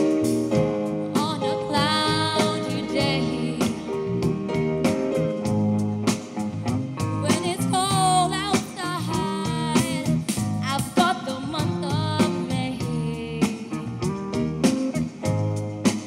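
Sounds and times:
electric bass: 0:00.0 - 0:16.0
steady drum beat: 0:00.0 - 0:16.0
woman singing with vibrato: 0:01.1 - 0:04.0, 0:07.2 - 0:14.0.

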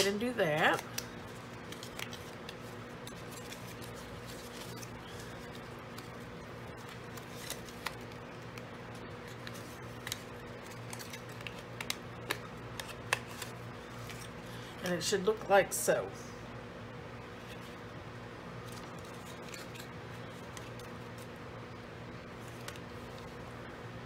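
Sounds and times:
cardstock rustling and clicking: 0:00.0 - 0:14.4
low background hum: 0:00.0 - 0:24.0.

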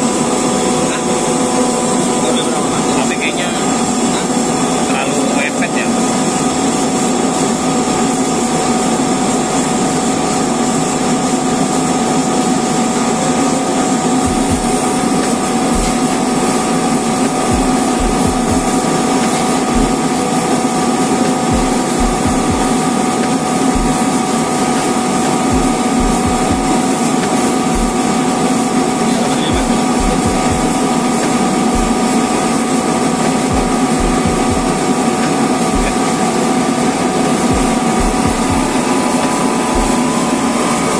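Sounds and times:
air compressor droning: 0:00.0 - 0:40.9
low thumps: 0:17.5 - 0:18.7, 0:21.5 - 0:22.8, 0:25.5 - 0:26.8, 0:31.8 - 0:32.0, 0:33.5 - 0:34.8, 0:37.5 - 0:38.8.

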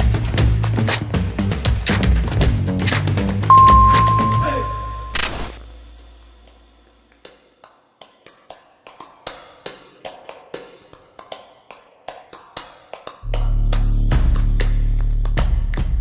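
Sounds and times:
countdown timer ticks: 0:03.5 - 0:05.2
jingle: 0:03.5 - 0:05.2.

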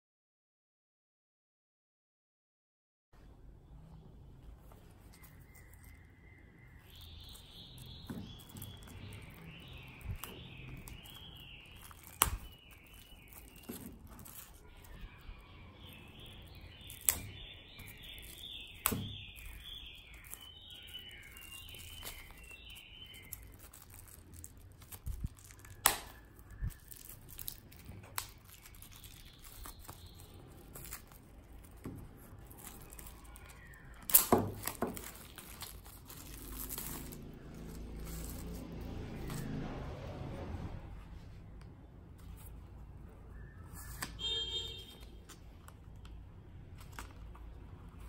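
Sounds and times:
plastic shrink-wrap tearing: 0:06.8 - 0:39.5.

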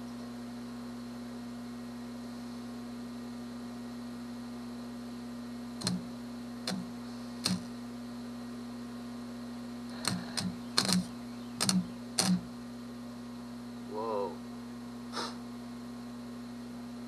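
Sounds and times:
steady hum: 0:00.0 - 0:17.0
welder arc crackling: 0:05.8 - 0:07.8, 0:09.9 - 0:12.5.

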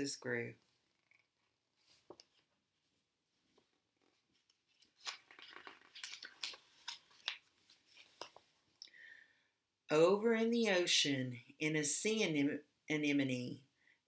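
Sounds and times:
book pages turning: 0:01.8 - 0:02.5, 0:03.4 - 0:08.6.

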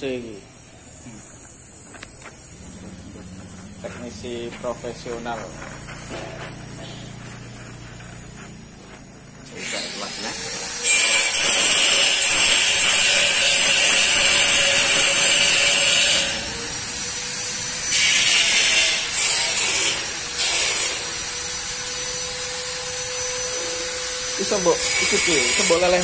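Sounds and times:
welding torch hissing: 0:00.0 - 0:26.0.

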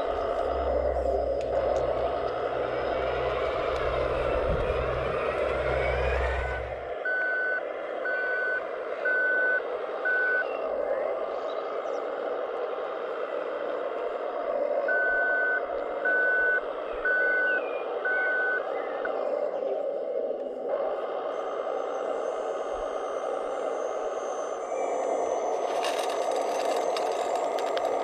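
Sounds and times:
low rumble: 0:00.0 - 0:08.2
reversing beeper: 0:00.0 - 0:11.5, 0:14.4 - 0:19.2, 0:21.4 - 0:28.0
simulated truck engine hum: 0:00.0 - 0:28.0.

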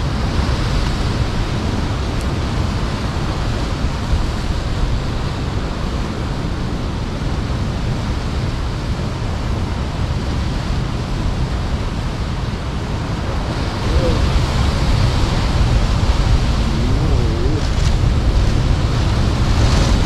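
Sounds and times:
sea surf: 0:00.0 - 0:20.0
wind: 0:00.0 - 0:20.0
wind rumble on microphone: 0:00.0 - 0:20.0.

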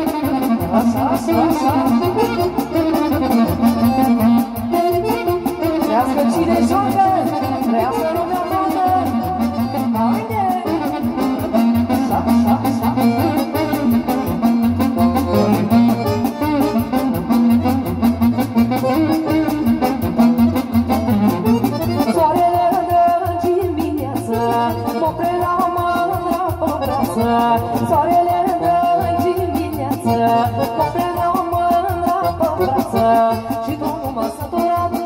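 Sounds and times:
live band playing dance music: 0:00.0 - 0:35.0.

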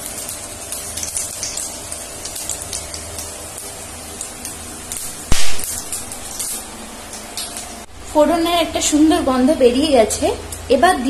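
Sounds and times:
spices sizzling in hot oil: 0:00.0 - 0:08.2.

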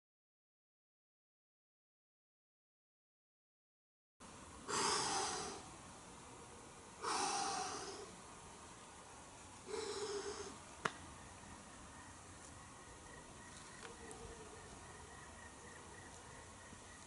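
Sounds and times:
person breathing out forcefully: 0:04.7 - 0:05.7, 0:07.0 - 0:08.1, 0:09.7 - 0:10.6.

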